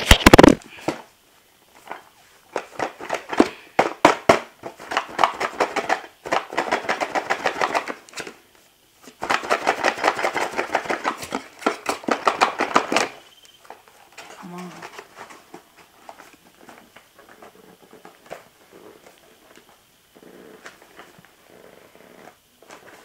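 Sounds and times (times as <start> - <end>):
plastic packaging clicking and scraping: 0.0 - 1.0, 9.0 - 19.8.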